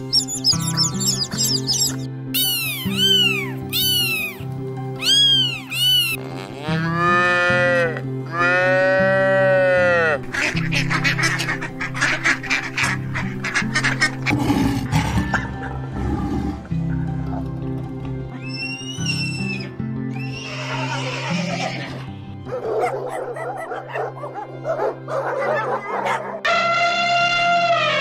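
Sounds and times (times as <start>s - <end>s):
background music: 0.0s - 28.0s
kitten meowing: 0.1s - 4.4s, 5.0s - 6.2s
short sharp animal calls: 0.4s - 4.4s
cow mooing: 6.2s - 10.2s.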